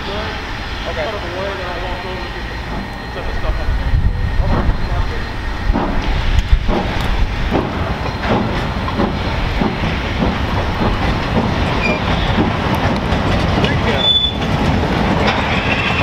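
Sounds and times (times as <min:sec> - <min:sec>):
heavy train and rail noise: 0:00.0 - 0:16.0
steam locomotive beats: 0:00.0 - 0:16.0.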